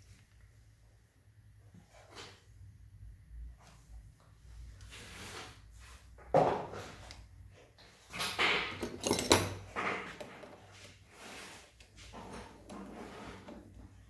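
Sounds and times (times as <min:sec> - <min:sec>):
metal tools clinking: 0:08.6 - 0:10.4.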